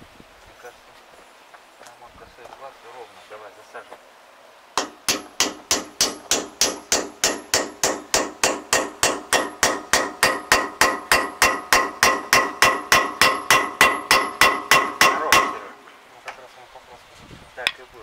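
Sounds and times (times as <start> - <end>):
hammer ringing on steel: 4.8 - 15.7.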